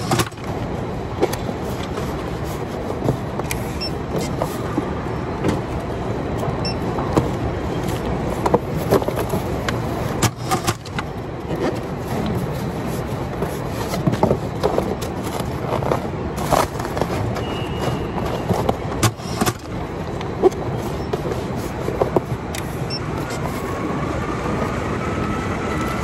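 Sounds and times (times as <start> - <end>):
machinery hum: 0.0 - 26.0
plastic wrap rustling: 11.6 - 19.0.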